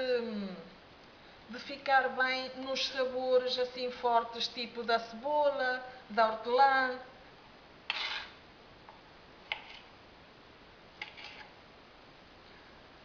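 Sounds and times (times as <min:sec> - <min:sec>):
knife scraping board: 0:07.9 - 0:08.4, 0:09.5 - 0:09.9, 0:11.0 - 0:11.6
knife slicing tomato: 0:07.9 - 0:08.4, 0:09.4 - 0:09.9, 0:11.0 - 0:11.6.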